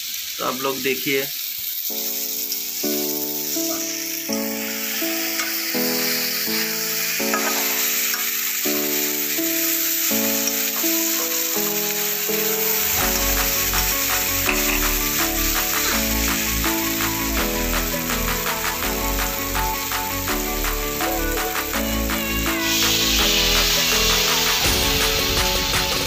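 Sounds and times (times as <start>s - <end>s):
vegetables sizzling in a pan: 0.0s - 26.0s
background music with beat: 10.1s - 26.0s.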